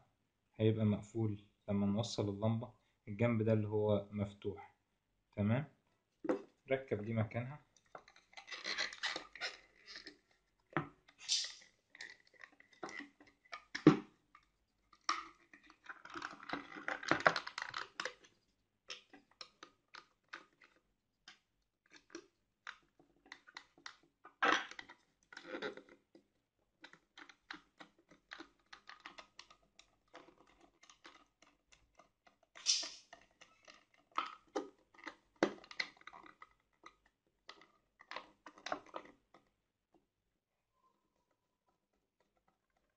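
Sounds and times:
plastic fittings clicking: 0:26.8 - 0:39.5.

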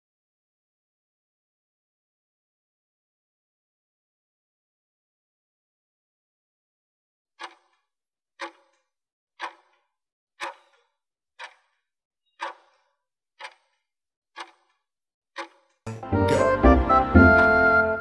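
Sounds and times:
timer ticking: 0:07.4 - 0:07.8, 0:08.4 - 0:08.8, 0:09.4 - 0:09.8, 0:10.4 - 0:10.8, 0:11.4 - 0:11.7, 0:12.4 - 0:13.8, 0:14.4 - 0:14.8, 0:15.4 - 0:18.0.

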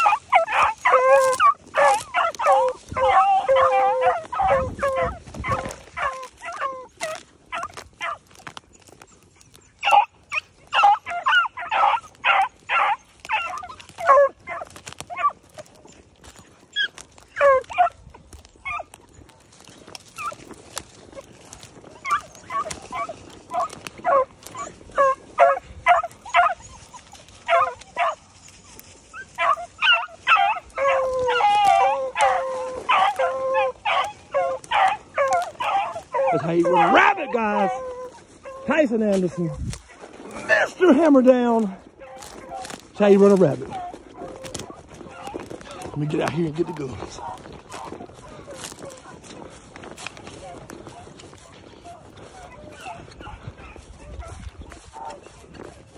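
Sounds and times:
hounds baying: 0:00.0 - 0:55.9.

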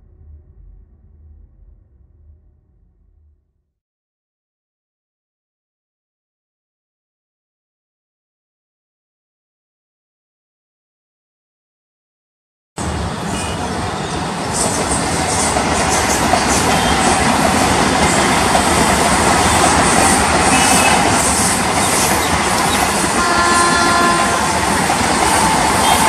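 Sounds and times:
train rumble and rail noise: 0:12.8 - 0:26.0.

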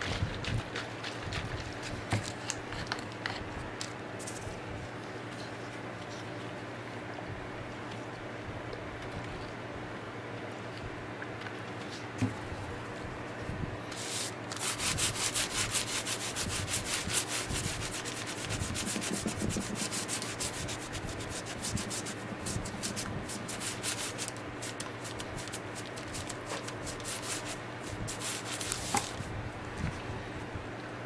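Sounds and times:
pad rubbing on leather: 0:14.0 - 0:29.2.

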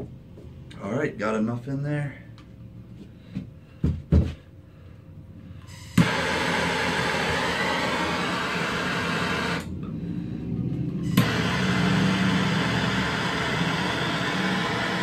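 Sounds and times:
propane torch hissing: 0:05.7 - 0:09.7, 0:11.1 - 0:15.0.

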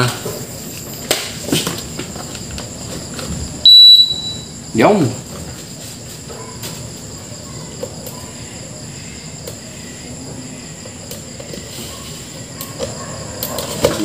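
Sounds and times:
high-pitched background chirring: 0:03.6 - 0:05.2, 0:06.4 - 0:14.0.

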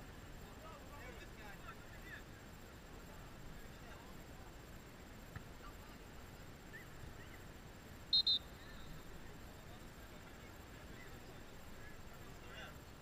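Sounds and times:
referee's whistle blasts: 0:08.1 - 0:09.1.

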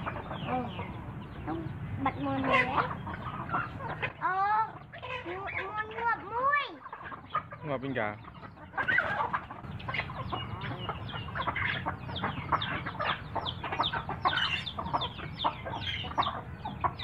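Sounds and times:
hens clucking and chicks peeping: 0:00.0 - 0:17.0.

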